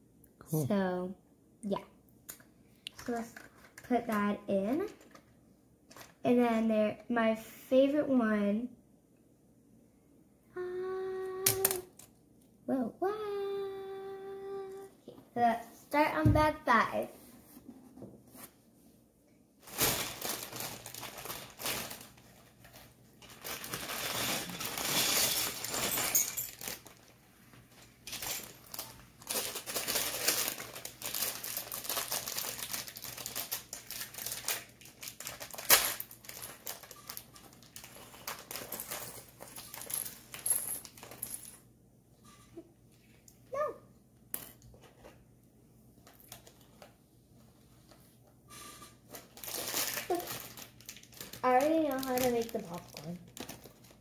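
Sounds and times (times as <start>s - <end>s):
plastic bag crinkling: 19.6s - 27.1s, 27.7s - 41.3s, 46.1s - 46.8s, 49.1s - 54.0s.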